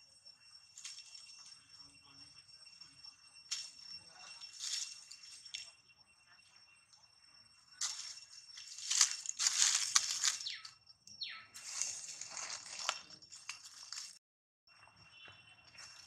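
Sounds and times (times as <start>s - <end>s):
dry leaves crunching underfoot: 4.4s - 5.6s, 7.8s - 10.7s, 11.6s - 14.2s.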